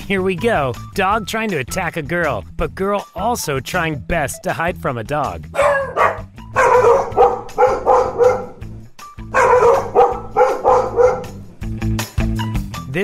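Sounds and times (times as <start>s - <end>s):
background music: 0.0s - 13.0s
dog barking: 5.6s - 8.7s, 9.3s - 11.5s.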